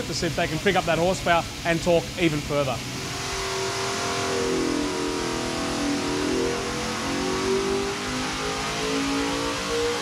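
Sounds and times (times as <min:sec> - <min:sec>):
engine running at high revs: 0:02.8 - 0:10.0.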